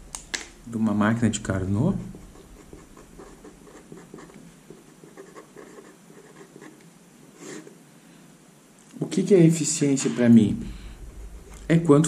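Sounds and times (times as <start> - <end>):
pen scratching on paper: 2.0 - 6.8, 7.4 - 7.7, 11.0 - 12.0.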